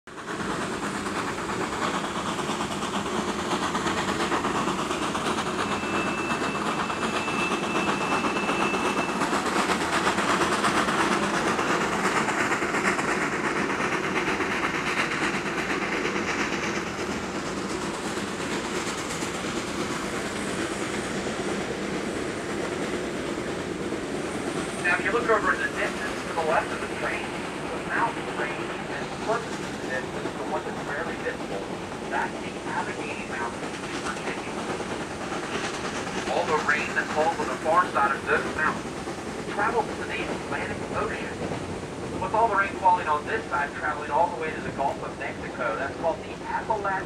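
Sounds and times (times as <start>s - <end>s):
train wheels clattering on track: 0.1s - 47.0s.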